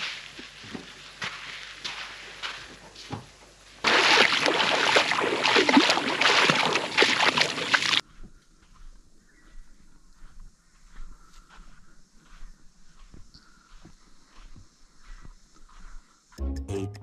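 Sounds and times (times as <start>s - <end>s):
water splashing and sloshing: 3.2s - 8.0s.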